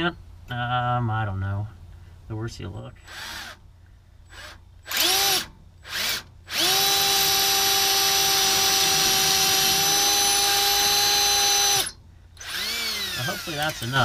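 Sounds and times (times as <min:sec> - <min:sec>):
cordless drill running: 0:03.1 - 0:03.6, 0:04.3 - 0:14.0.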